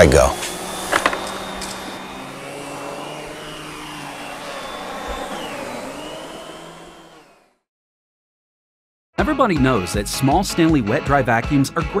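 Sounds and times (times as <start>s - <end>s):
vacuum cleaner running on carpet: 0.0s - 7.6s.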